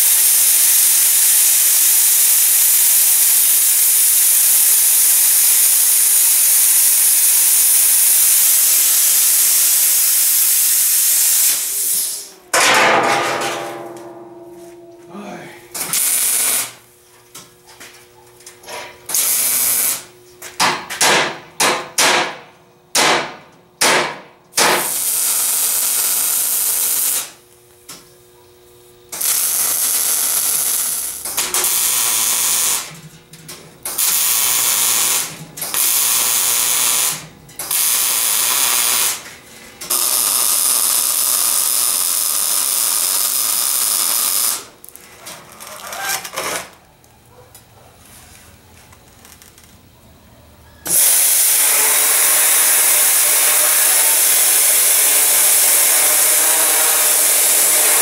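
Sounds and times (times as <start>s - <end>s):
welder arc crackling: 15.8s - 16.8s, 19.1s - 20.1s, 24.7s - 27.4s, 29.1s - 32.9s, 33.9s - 39.2s, 39.8s - 45.0s.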